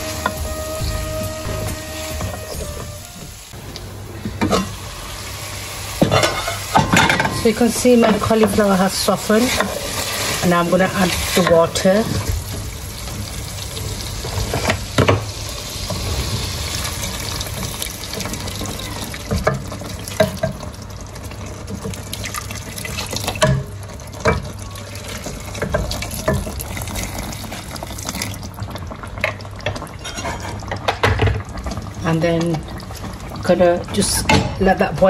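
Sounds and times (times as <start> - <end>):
water pouring into a pot: 8.7 - 30.1.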